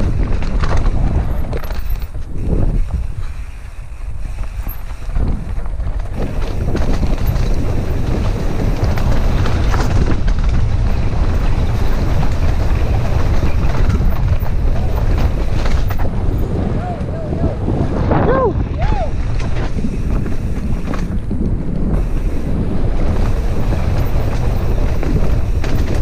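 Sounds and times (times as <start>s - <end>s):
bike tyres rattling on dirt trail: 0.0s - 26.0s
wind buffeting microphone: 0.0s - 26.0s.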